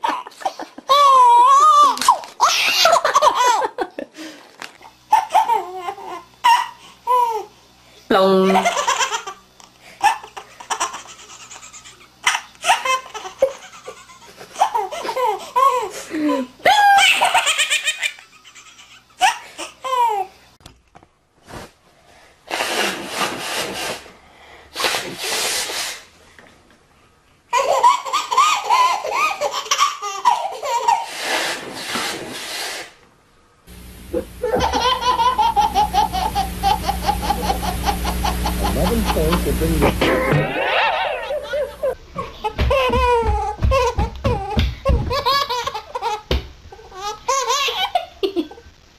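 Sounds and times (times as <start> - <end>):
babies laughing: 0.0 - 4.0, 5.1 - 7.5, 8.4 - 9.4, 10.0 - 20.3, 27.5 - 31.2, 34.2 - 48.4.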